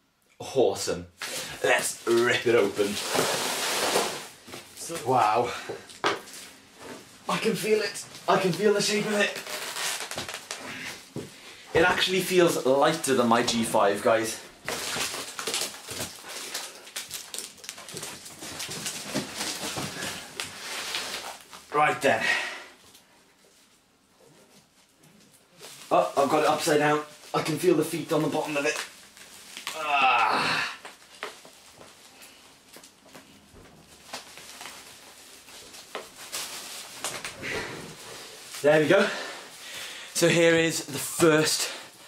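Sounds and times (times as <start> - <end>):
bubble wrap crinkling: 1.2 - 11.1, 12.9 - 21.7, 24.5 - 42.0
cardboard box rustling and scraping: 2.8 - 4.3.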